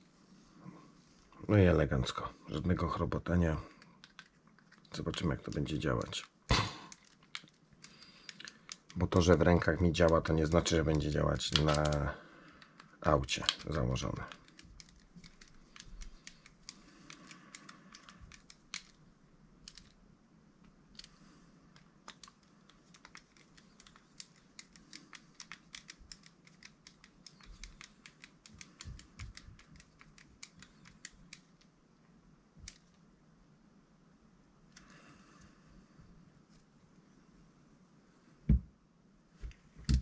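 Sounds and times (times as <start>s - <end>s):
small parts clicking and tapping: 3.7s - 19.0s, 19.6s - 20.0s, 20.6s - 31.8s, 32.6s - 33.0s.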